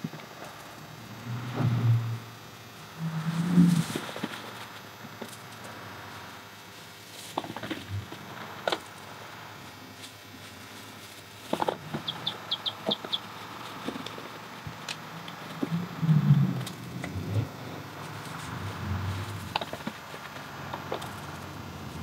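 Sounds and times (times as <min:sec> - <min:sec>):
branches rustling and crackling: 0:02.9 - 0:05.8, 0:06.4 - 0:22.0
bird chirping: 0:12.0 - 0:13.3.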